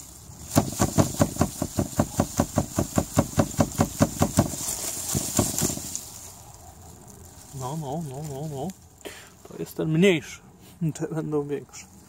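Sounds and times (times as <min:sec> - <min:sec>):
dull knocks of shaken root: 0:00.4 - 0:06.2.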